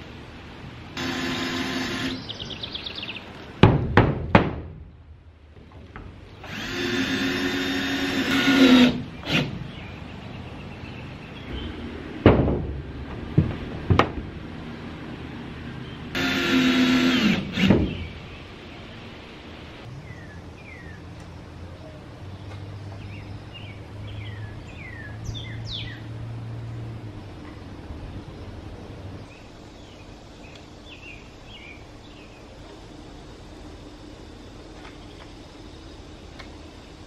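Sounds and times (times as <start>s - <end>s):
cordless drill driving screws: 1.0s - 2.2s, 6.4s - 9.5s, 16.2s - 17.7s
knocks and clanks on metal roof: 3.6s - 4.8s, 11.5s - 14.3s.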